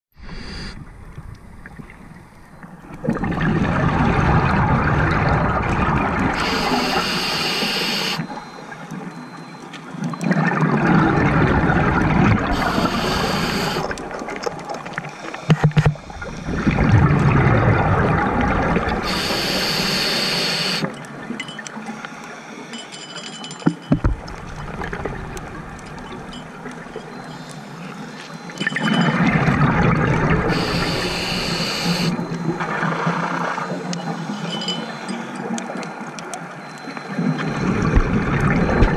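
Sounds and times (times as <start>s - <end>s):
regulator hiss: 0.2s - 0.8s, 6.4s - 8.3s, 12.5s - 13.9s, 19.0s - 20.8s, 30.5s - 32.3s
gurgling exhaust bubbles: 2.9s - 7.4s, 10.2s - 15.1s, 16.0s - 20.8s, 28.8s - 33.9s, 37.2s - 38.9s.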